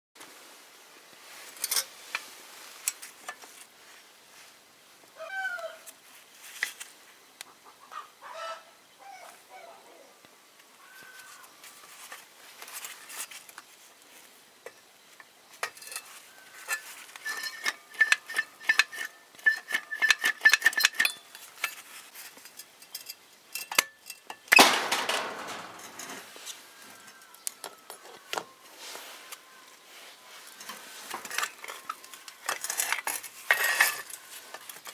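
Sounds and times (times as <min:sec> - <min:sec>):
metal clinks and clanks: 0:16.7 - 0:26.3, 0:30.6 - 0:34.9.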